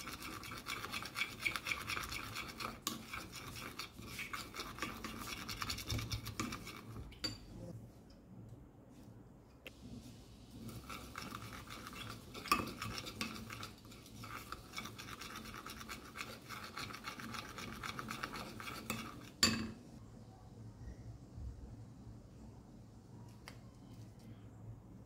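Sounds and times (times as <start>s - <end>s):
spoon scraping glass bowl: 0.0s - 7.5s, 10.6s - 19.6s.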